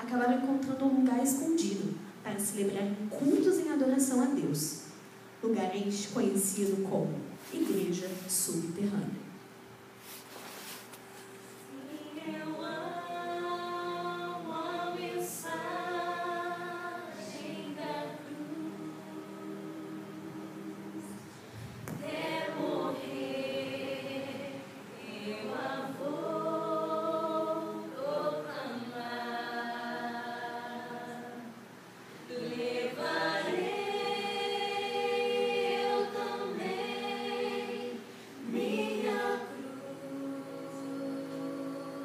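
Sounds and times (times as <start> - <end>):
group singing a hymn: 11.6 - 42.0.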